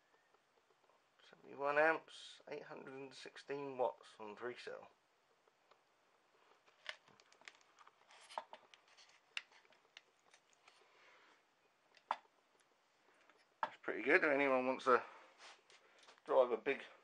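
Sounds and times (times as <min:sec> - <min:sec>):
handling rustles: 0:06.4 - 0:13.8.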